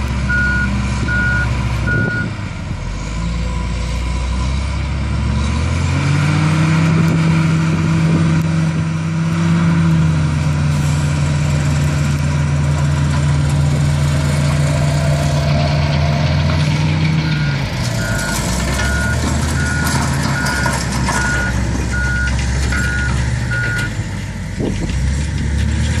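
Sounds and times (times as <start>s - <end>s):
heavy diesel engines revving: 0.0s - 26.0s
back-up alarm beeping: 0.3s - 2.3s, 17.3s - 23.9s.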